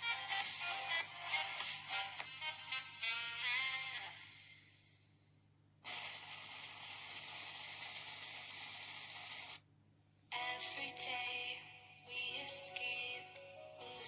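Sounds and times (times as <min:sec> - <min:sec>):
background music: 0:00.0 - 0:04.4, 0:10.3 - 0:14.0.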